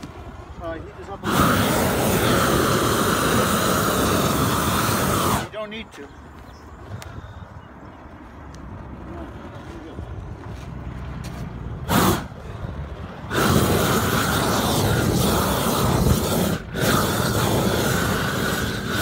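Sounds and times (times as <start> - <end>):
gas torch jet hissing: 1.2 - 5.6, 11.8 - 12.4, 13.3 - 19.0.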